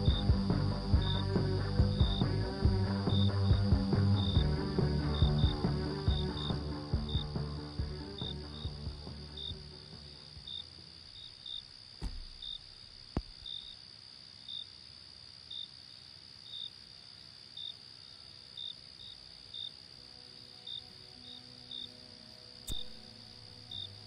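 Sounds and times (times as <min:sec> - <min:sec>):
crickets chirping: 0:00.0 - 0:24.0
steady high insect trill: 0:00.0 - 0:24.0
sharp clicks: 0:22.7 - 0:23.0.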